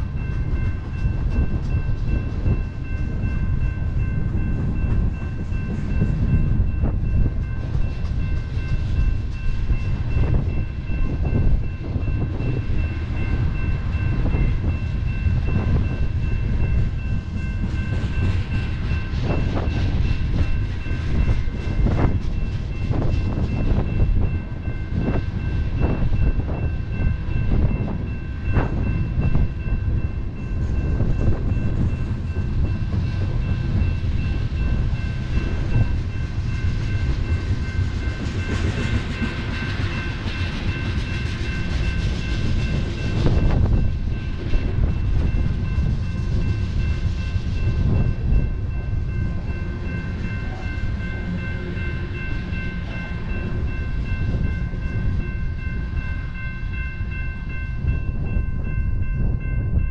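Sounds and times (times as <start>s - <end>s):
crossing warning bells ringing: 0.0s - 59.9s
freight train rumbling: 0.0s - 59.9s.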